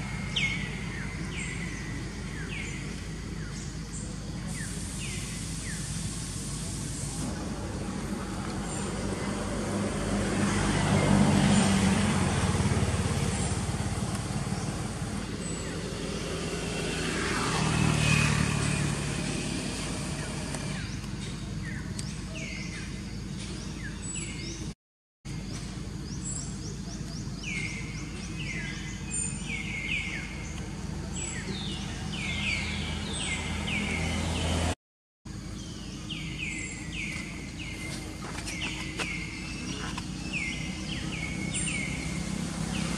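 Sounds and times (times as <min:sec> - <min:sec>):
motor vehicle passing: 0:07.1 - 0:21.8, 0:28.5 - 0:34.8, 0:36.1 - 0:42.9.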